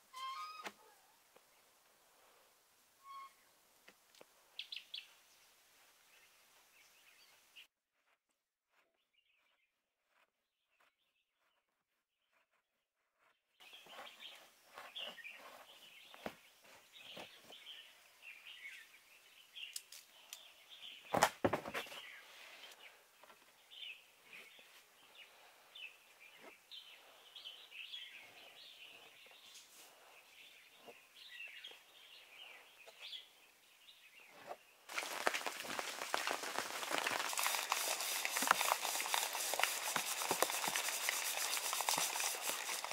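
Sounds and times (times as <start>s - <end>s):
birds chirping: 21.9s - 42.9s
scraping and handling sounds: 34.4s - 42.9s.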